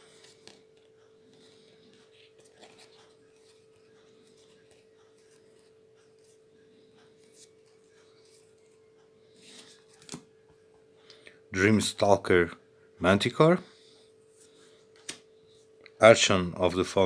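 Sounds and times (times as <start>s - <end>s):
faint steady hum: 0.0s - 17.0s
cards sliding and rubbing: 0.1s - 6.4s.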